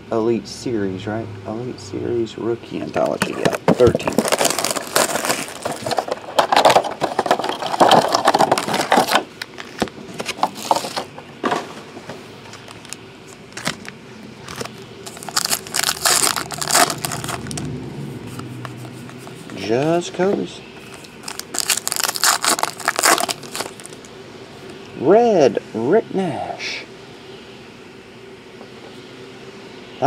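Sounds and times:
plastic wrapping crinkling: 3.0 - 11.1, 12.4 - 19.7, 20.8 - 24.1
foil card pack tearing open: 3.1 - 11.1, 12.6 - 17.7, 20.9 - 24.1.

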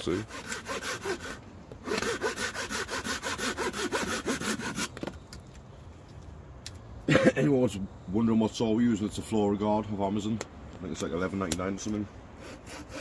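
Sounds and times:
hand saw cutting a branch: 0.0 - 5.1, 11.9 - 13.0.

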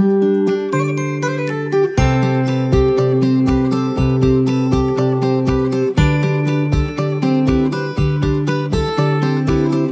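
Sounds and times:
plucked strings over a beat: 0.0 - 9.9.

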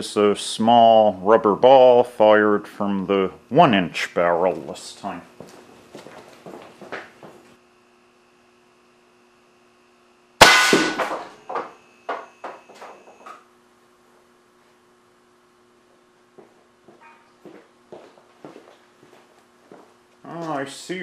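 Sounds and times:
air cannon bang: 10.4 - 11.3
ball striking glass screen: 10.4 - 12.6.

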